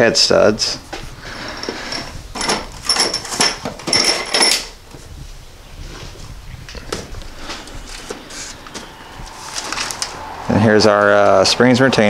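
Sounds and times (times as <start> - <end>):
metal nuts clinking in a box: 1.5 - 4.8.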